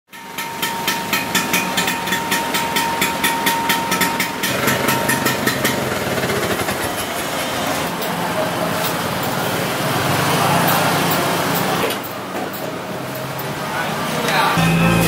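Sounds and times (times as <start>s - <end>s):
scooter engine idling: 4.4s - 7.4s.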